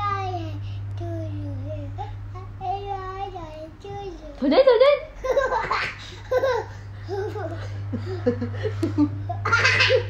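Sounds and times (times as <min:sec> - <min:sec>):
steady low hum: 0:00.0 - 0:10.0
toddler laughing: 0:05.2 - 0:07.8, 0:09.2 - 0:10.0.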